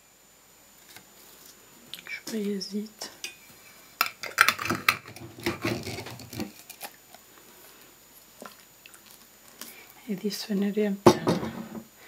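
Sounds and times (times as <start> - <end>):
jar scraping on table: 4.4 - 6.5.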